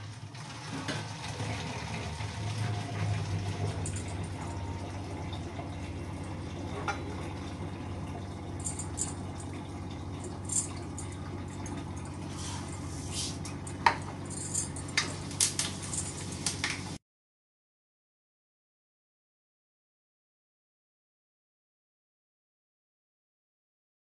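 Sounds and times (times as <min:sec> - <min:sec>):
steady low hum: 0:03.1 - 0:17.0.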